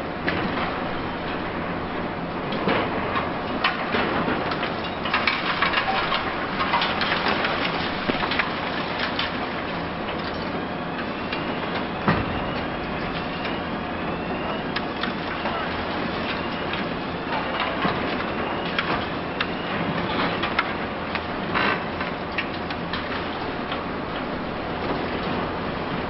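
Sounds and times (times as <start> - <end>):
excavator droning: 9.6 - 26.0
rising machine whine: 11.0 - 17.6.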